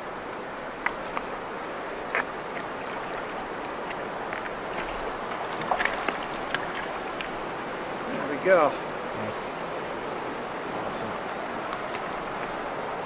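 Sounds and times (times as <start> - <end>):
river water rushing: 0.0 - 13.0
fish splashing: 0.8 - 8.1.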